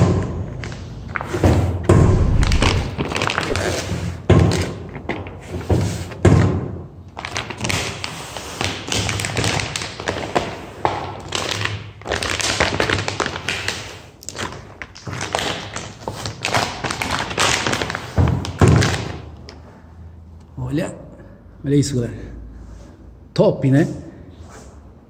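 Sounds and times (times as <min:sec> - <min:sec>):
plastic film crinkling: 0:02.1 - 0:03.9, 0:11.2 - 0:19.2.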